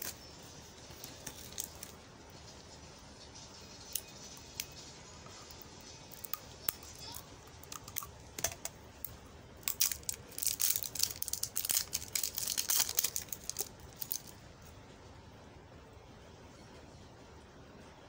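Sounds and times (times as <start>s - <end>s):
plastic wrap crinkling: 0.0s - 2.0s, 9.6s - 14.4s.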